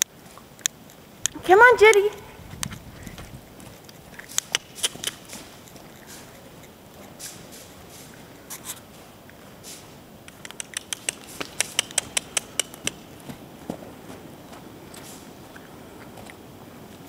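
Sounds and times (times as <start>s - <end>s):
rapid sharp clicks: 3.9s - 6.7s, 10.3s - 13.1s.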